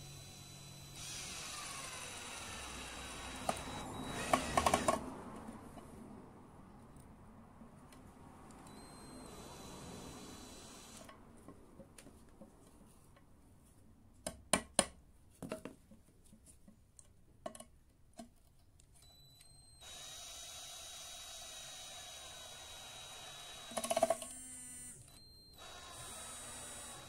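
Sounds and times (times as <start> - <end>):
screw and drill bit clicking on wood: 0.8 - 5.0, 19.8 - 24.4
faint hum with high whine: 8.6 - 11.1.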